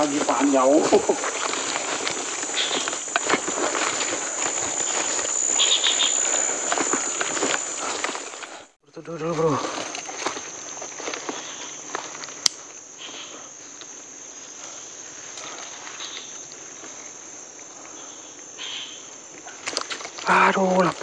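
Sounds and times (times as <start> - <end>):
faint rustles: 0.0 - 8.7
insects droning: 0.0 - 21.0.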